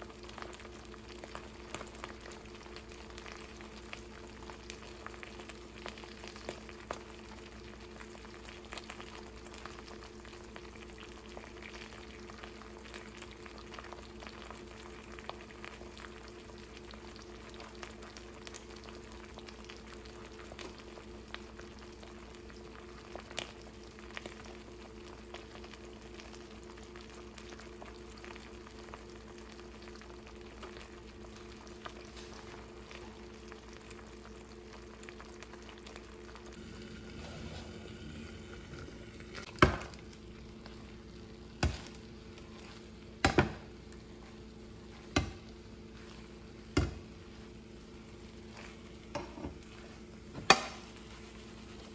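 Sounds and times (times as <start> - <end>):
pops and crackles: 0.0 - 36.6
eggs sizzling in a pan: 0.0 - 51.9
low hum: 33.8 - 51.9.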